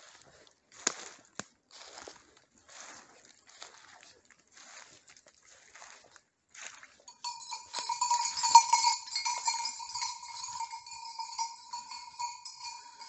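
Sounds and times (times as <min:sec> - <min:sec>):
leaves and brush crackling: 0:00.0 - 0:06.8
dog collar bell ringing: 0:07.1 - 0:13.0.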